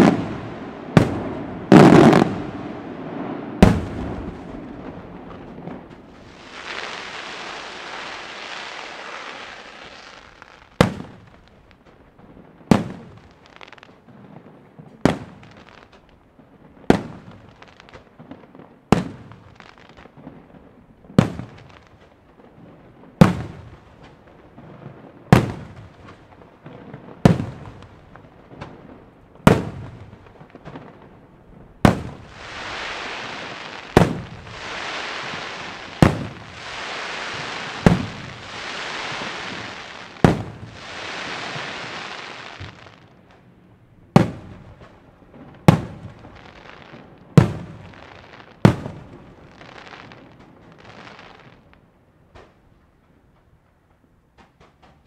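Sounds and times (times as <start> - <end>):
steady hiss: 0.0 - 12.0, 12.9 - 14.0, 31.8 - 43.4, 45.7 - 51.8
firework shells bursting: 31.9 - 43.0.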